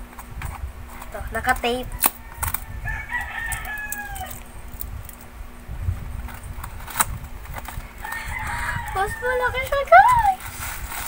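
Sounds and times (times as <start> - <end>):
rooster crowing: 1.9 - 4.5, 7.8 - 9.8.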